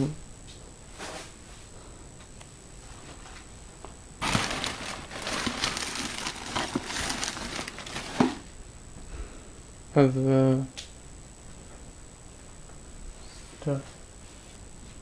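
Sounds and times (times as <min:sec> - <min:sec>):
crinkling rustling handling noise: 0:04.2 - 0:08.4.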